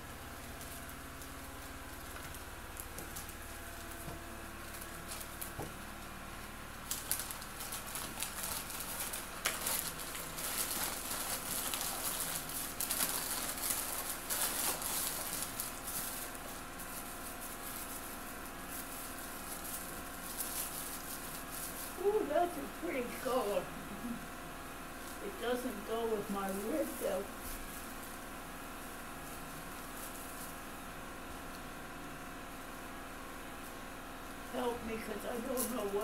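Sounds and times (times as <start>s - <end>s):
wrapping paper rustling and crinkling: 0.1s - 32.0s, 32.6s - 36.0s.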